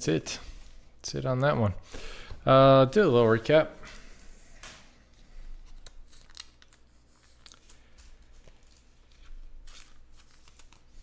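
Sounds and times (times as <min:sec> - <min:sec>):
trading cards clicking and rustling: 0:05.7 - 0:11.0.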